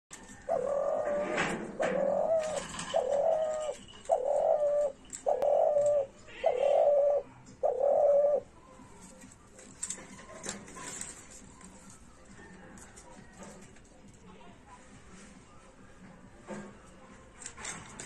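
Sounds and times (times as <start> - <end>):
dove cooing: 0.1 - 13.6.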